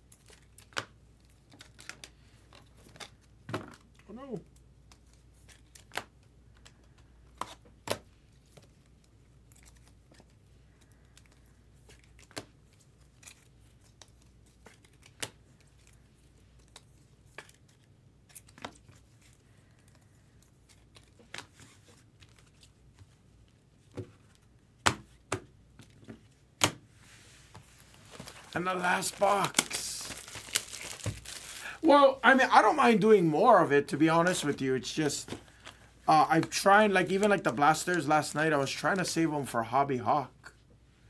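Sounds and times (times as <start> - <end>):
wrapper rustling: 27.4 - 32.6.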